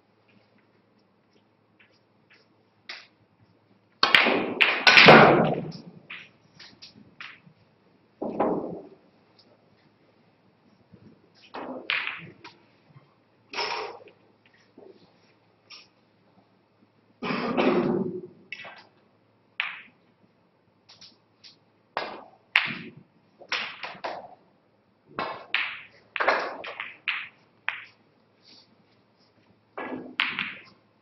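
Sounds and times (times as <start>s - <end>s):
snooker balls clicking: 0.3s - 3.2s, 3.9s - 7.6s, 8.2s - 9.9s, 11.4s - 12.8s, 17.9s - 20.2s, 20.9s - 24.4s, 25.1s - 28.3s, 29.3s - 30.9s.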